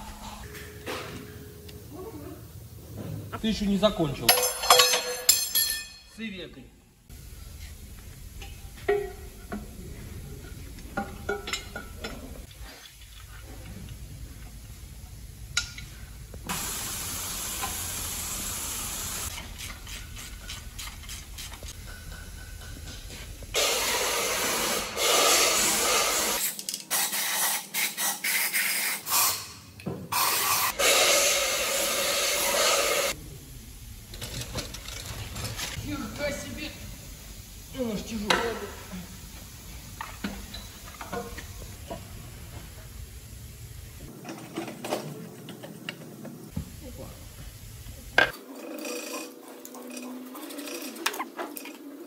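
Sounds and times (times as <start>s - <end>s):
hissing jet spray: 16.5s - 21.7s, 23.5s - 26.4s, 30.2s - 33.2s.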